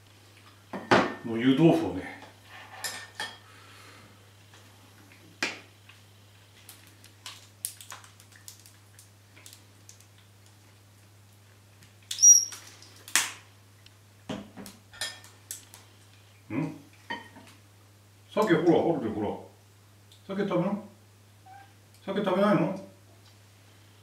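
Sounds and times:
tableware clatter: 2.5s - 3.4s, 14.9s - 15.3s.

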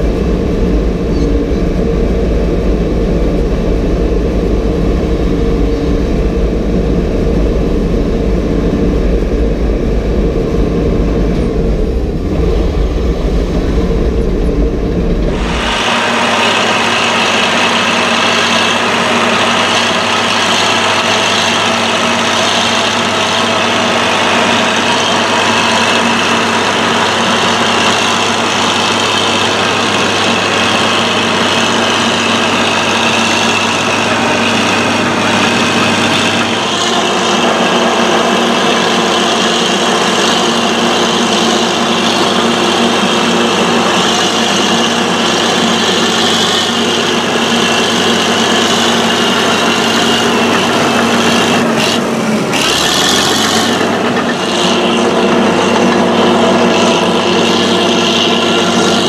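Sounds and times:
bulldozer diesel engine under load: 0.0s - 59.0s
blade pushing soil: 15.1s - 59.0s.

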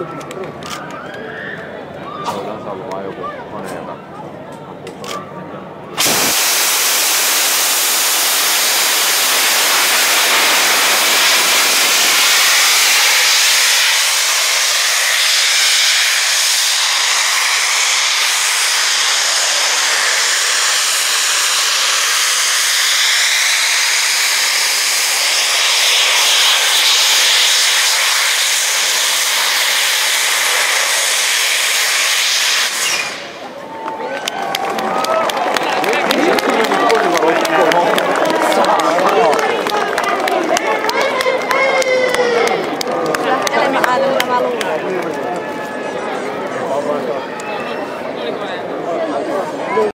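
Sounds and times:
rocket belt steam-jet hiss: 6.0s - 33.4s.

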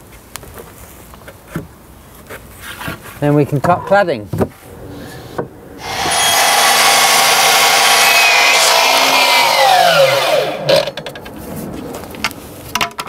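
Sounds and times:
mitre saw cutting wood: 5.8s - 11.0s
saw blade winding down whine: 5.8s - 11.0s.

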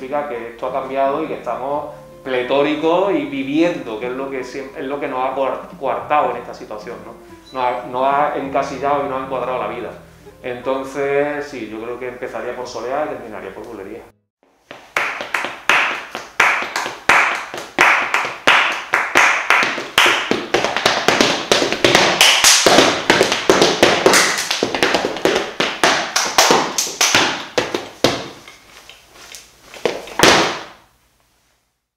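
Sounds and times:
man clapping a rhythm: 14.7s - 27.9s.

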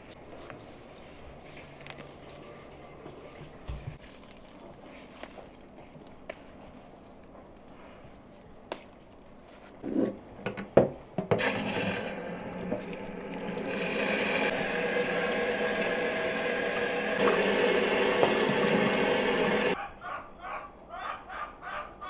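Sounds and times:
tap water running: 11.2s - 19.8s.

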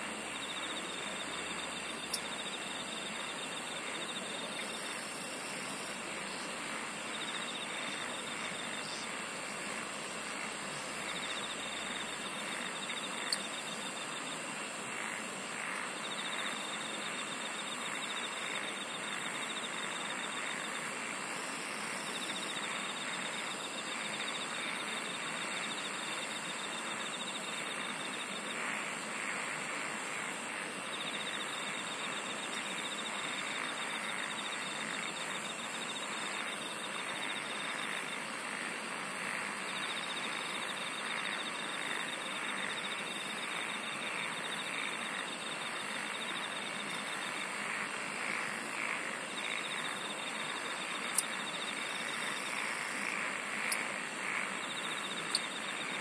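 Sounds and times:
shrill pulsing insect calls: 0.0s - 38.3s, 39.2s - 47.7s, 48.4s - 56.0s
insect trill: 0.0s - 56.0s
high-pitched insect buzz: 0.1s - 14.4s.

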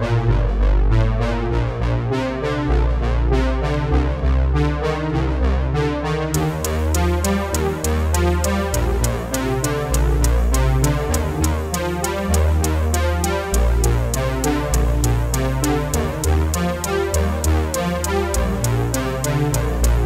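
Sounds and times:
deep bass line: 0.0s - 20.0s
synthesizer: 0.0s - 20.0s
drum-machine beat: 6.4s - 20.0s.

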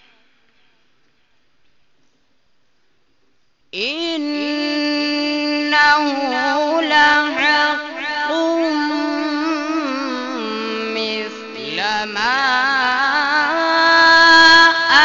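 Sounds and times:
man reciting melodically over loudspeakers: 3.8s - 15.0s.

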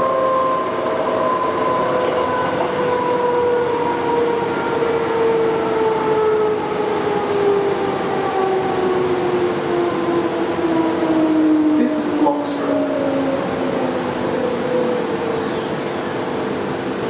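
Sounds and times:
electric train rumbling: 0.0s - 17.0s.

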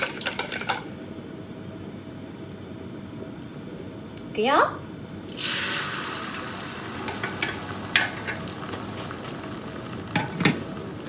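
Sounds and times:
egg sizzling in frying pan: 5.2s - 11.0s.

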